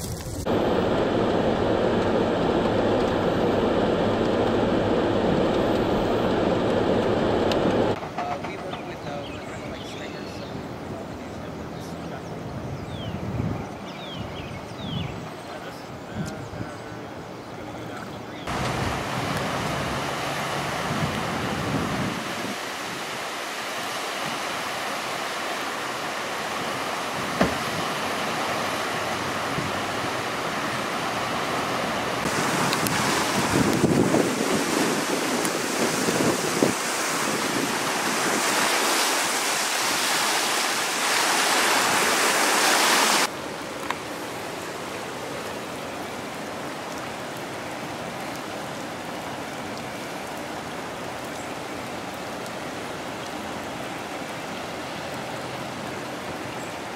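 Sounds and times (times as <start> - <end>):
floodwater rushing under bridge: 17.0 - 56.9
rain falling on flooded ground: 18.4 - 56.9.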